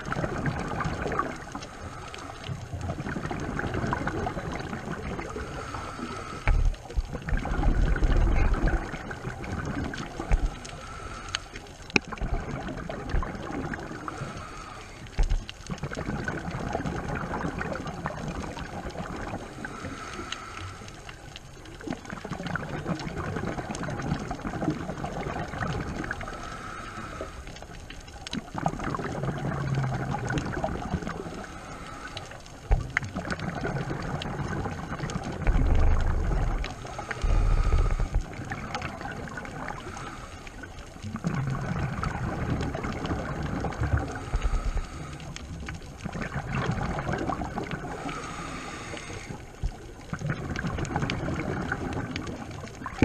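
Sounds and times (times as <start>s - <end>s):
gurgling exhaust bubbles: 0.0s - 11.2s, 11.9s - 14.5s, 15.1s - 20.1s, 21.8s - 26.5s, 28.3s - 53.0s
regulator breathing hiss: 5.3s - 6.6s, 10.7s - 11.6s, 14.1s - 15.1s, 19.5s - 21.0s, 26.3s - 27.6s, 31.3s - 32.4s, 36.8s - 38.2s, 44.2s - 45.4s, 48.0s - 49.5s.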